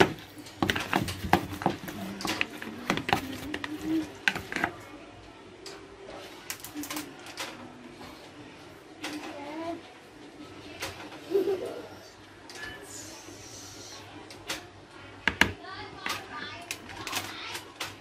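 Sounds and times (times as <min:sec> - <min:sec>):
utensils tapping a plastic bowl: 0:00.0 - 0:04.8.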